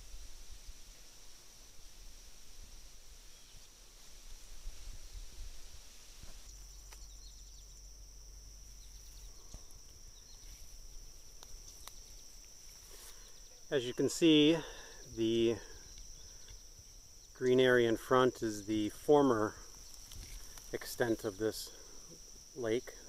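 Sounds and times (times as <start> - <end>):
insects singing: 2.6 - 23.0
wind rumble on microphone: 4.3 - 6.5
faint ticks: 11.3 - 12.6, 15.9 - 17.6, 19.7 - 20.8.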